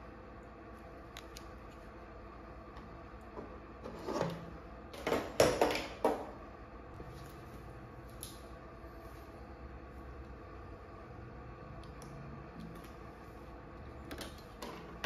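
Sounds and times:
objects scraping on wooden table: 0:03.8 - 0:04.5.

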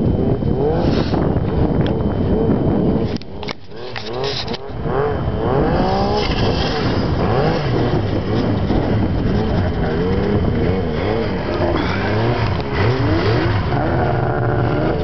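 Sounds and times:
snowmobile engine revving: 0:03.6 - 0:15.0.

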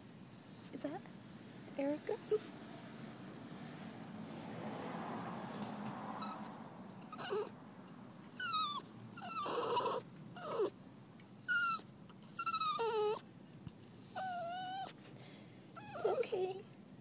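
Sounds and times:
dog whining: 0:05.5 - 0:07.6, 0:08.3 - 0:10.8, 0:11.4 - 0:13.2, 0:14.0 - 0:15.0, 0:15.7 - 0:16.6.

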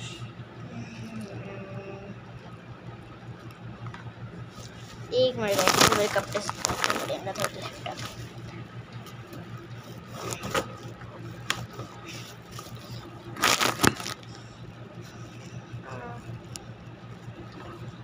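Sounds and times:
steady low hum: 0:00.0 - 0:18.0
clothing rubbing against microphone: 0:04.5 - 0:08.4.

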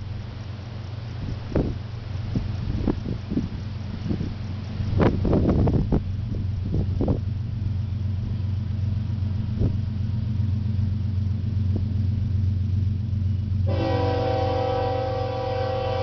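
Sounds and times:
diesel locomotive rumbling: 0:00.0 - 0:16.0
train air horn: 0:13.6 - 0:16.0.

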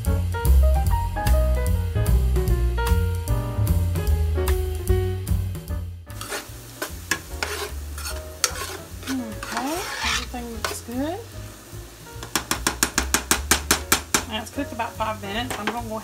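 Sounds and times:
background music: 0:00.0 - 0:16.0
onions sizzling in skillet: 0:04.7 - 0:16.0
utensil scraping pan: 0:06.2 - 0:11.0, 0:12.2 - 0:16.0
utensil tapping pan: 0:06.2 - 0:11.0, 0:12.2 - 0:16.0.

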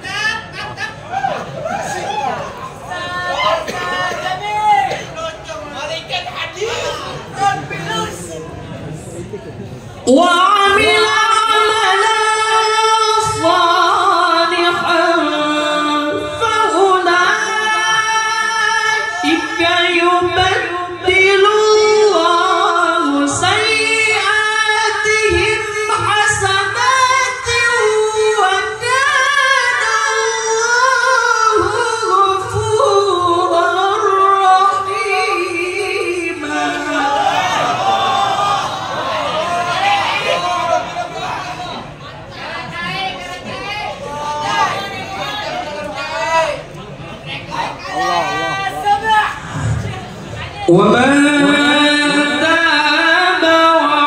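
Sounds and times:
person reciting melodically into microphone: 0:10.0 - 0:37.8, 0:50.6 - 0:54.0.

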